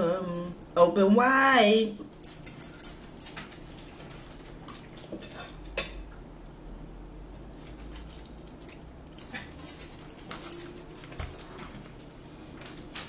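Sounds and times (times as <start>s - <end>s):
forks clinking on plates: 2.1s - 6.1s, 9.2s - 12.1s.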